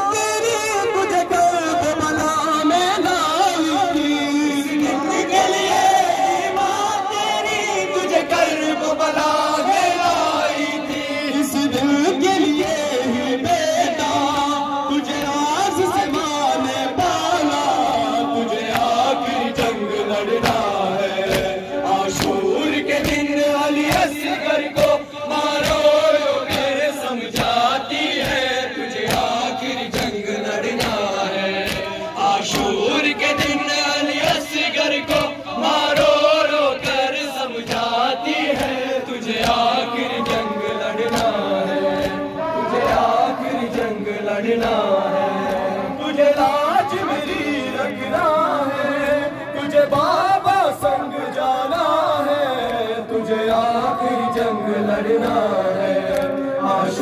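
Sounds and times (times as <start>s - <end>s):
men chanting through microphones: 0.0s - 57.0s
hands slapping chests: 17.0s - 50.2s, 52.5s - 56.4s.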